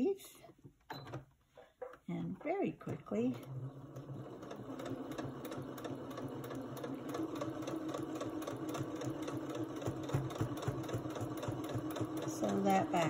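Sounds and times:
sewing machine running: 0:03.2 - 0:13.0.

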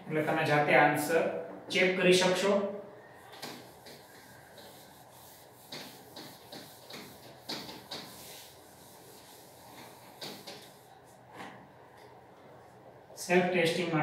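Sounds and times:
cloth rubbing on whiteboard: 0:03.2 - 0:11.3.

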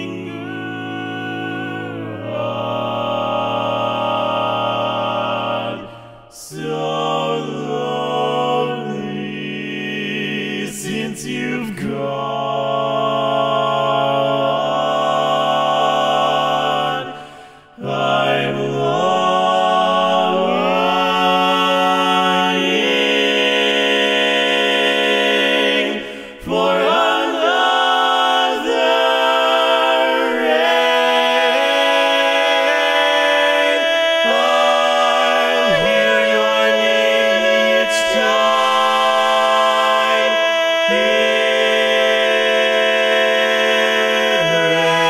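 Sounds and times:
male close-harmony singing: 0:17.8 - 0:45.0.

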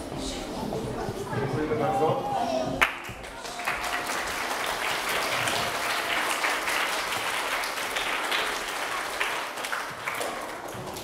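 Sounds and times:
children applauding: 0:02.8 - 0:11.0.

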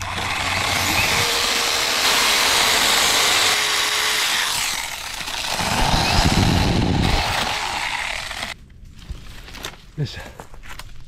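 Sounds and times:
power saw cutting wood: 0:00.0 - 0:08.6.

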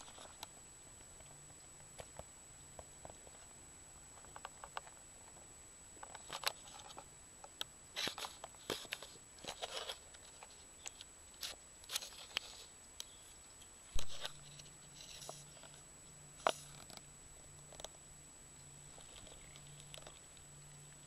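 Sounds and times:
rustling crunching noises: 0:08.0 - 0:18.0, 0:18.8 - 0:21.0.

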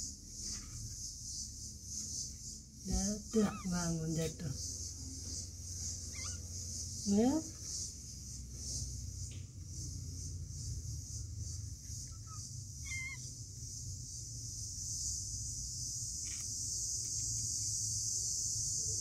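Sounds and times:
faint squeak: 0:02.9 - 0:04.5, 0:06.0 - 0:06.6, 0:12.0 - 0:13.3
kitten mewing: 0:03.4 - 0:03.8, 0:06.1 - 0:06.4, 0:12.1 - 0:13.3.

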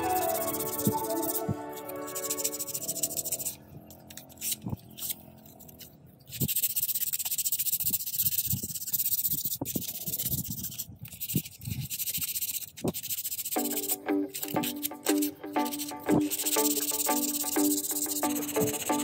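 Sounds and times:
sandpaper rubbing wood: 0:00.0 - 0:03.6, 0:06.3 - 0:19.0.

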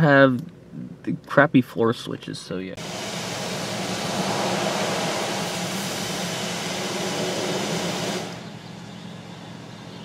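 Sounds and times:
high-pressure water jets spraying: 0:02.8 - 0:08.4.

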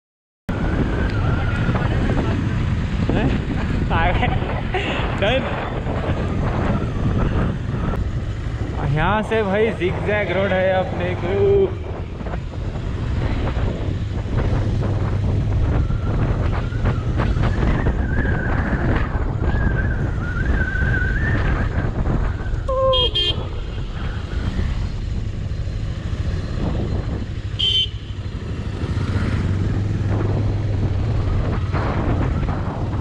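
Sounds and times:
wind rushing over microphone: 0:00.5 - 0:33.0
horn toot: 0:22.7 - 0:23.8, 0:27.6 - 0:28.2
motorcycle engine running: 0:22.9 - 0:33.0.

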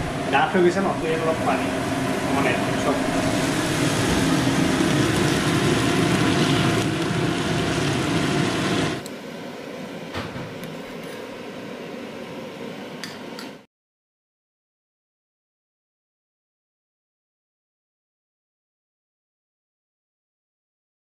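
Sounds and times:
machine hum with rushing hiss: 0:00.0 - 0:13.7.

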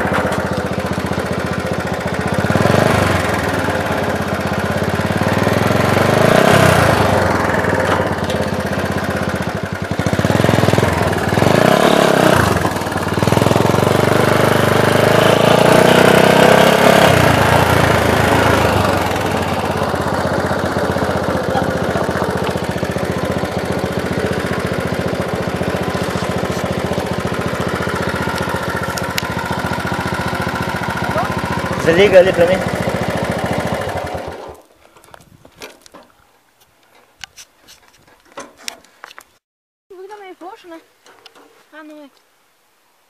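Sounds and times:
tyres rolling over gravel: 0:00.0 - 0:05.6, 0:17.2 - 0:36.3
dirt bike engine revving: 0:00.0 - 0:34.6
dirt bike engine idling: 0:00.0 - 0:34.7.

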